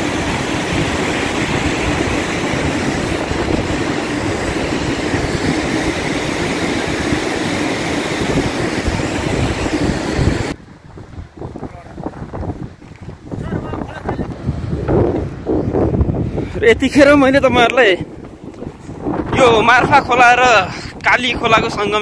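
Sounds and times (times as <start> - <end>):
flooded river roaring: 0.0 - 16.2
wind buffeting microphone: 0.0 - 22.0.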